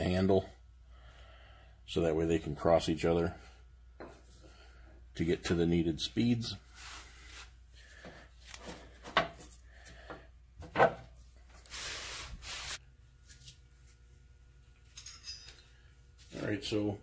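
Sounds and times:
rubbing and shuffling: 11.5s - 14.0s.

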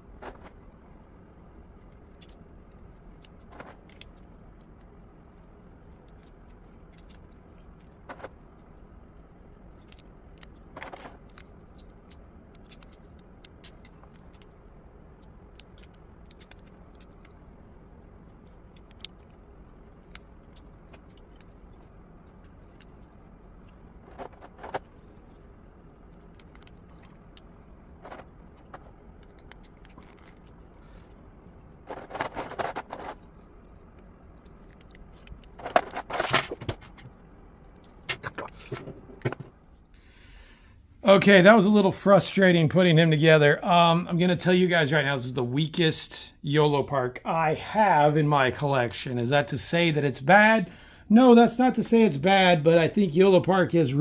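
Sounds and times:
plastic parts clicking together: 1.9s - 39.6s.

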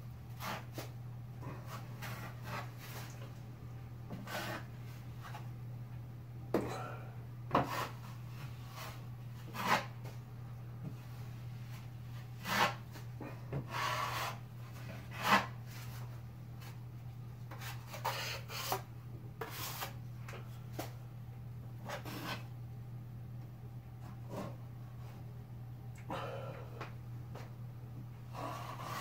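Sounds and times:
drywall knife scraping ceiling: 0.4s - 3.2s, 4.1s - 4.8s, 7.6s - 10.0s, 12.3s - 13.0s, 13.6s - 16.0s, 17.5s - 20.0s, 21.8s - 22.5s, 28.3s - 29.0s.

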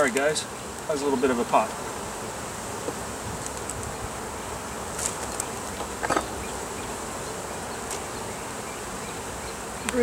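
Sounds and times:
honeybees buzzing: 0.0s - 10.0s
wooden hive frames pried up: 4.8s - 6.5s.

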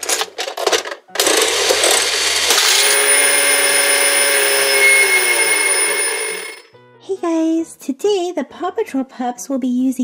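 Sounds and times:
steady ringing tones: 1.8s - 6.7s.

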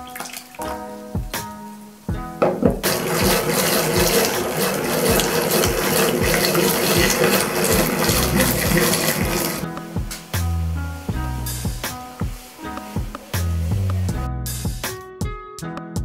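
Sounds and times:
egg beater churning cream: 2.8s - 9.6s
whisk clicking against bowl: 2.8s - 9.6s.

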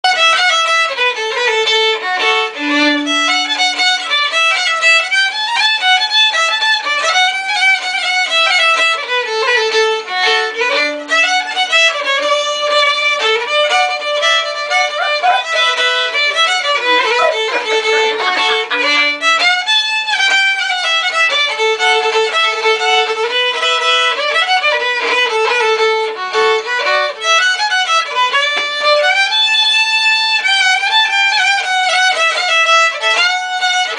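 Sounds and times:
solo violin: 0.0s - 33.9s.

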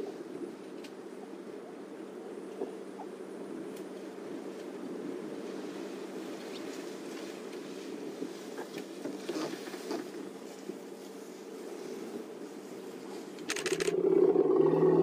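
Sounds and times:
background hiss: 0.0s - 15.0s
leaves and twigs rustling: 3.5s - 14.0s.

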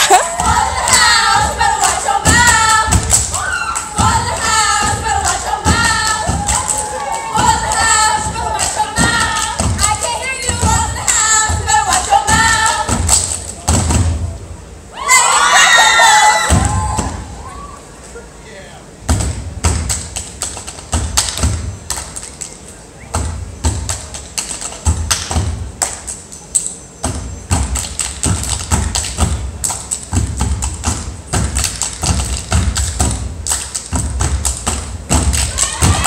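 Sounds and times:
stomps on wooden stage floor: 7.3s - 14.3s, 19.1s - 20.1s, 24.8s - 25.7s, 27.0s - 36.0s
hand claps: 19.8s - 22.7s, 23.8s - 26.8s, 27.6s - 35.9s.

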